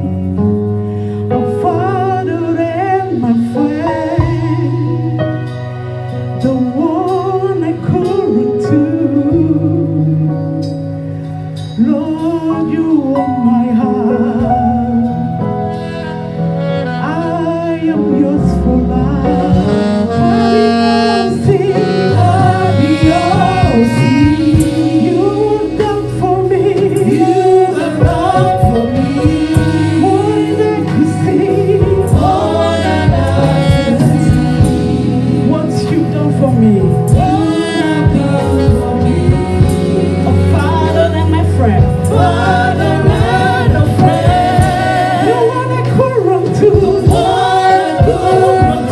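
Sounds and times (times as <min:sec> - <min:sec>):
band accompaniment: 0:00.0 - 0:48.9
woman singing lead: 0:06.4 - 0:10.8, 0:11.7 - 0:48.9
choir singing: 0:18.9 - 0:48.9.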